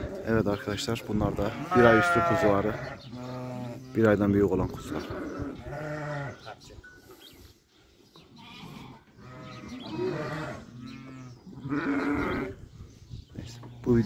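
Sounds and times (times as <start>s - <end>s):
sheep and lambs bleating: 1.2s - 4.1s, 4.8s - 6.5s, 8.2s - 12.7s.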